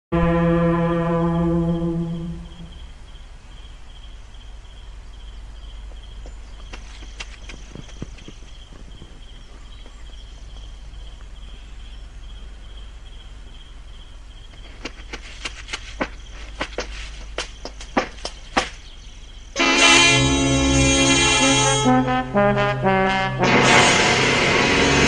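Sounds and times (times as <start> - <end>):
low hum: 0.1 - 17.4, 18.2 - 25.0
crickets chirping: 1.2 - 22.3
footsteps tapping: 5.8 - 11.3, 14.5 - 19.0.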